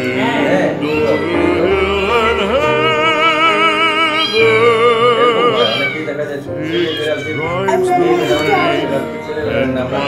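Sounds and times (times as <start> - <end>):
person singing with vibrato: 6.7 - 10.0.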